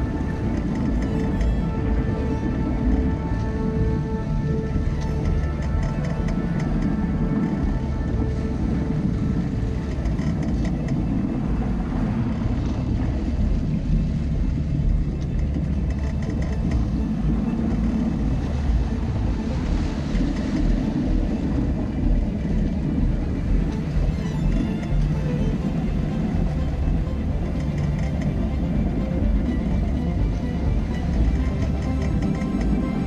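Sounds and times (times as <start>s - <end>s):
water rushing along hull: 0.0s - 33.0s
wind buffeting microphone: 0.0s - 33.0s.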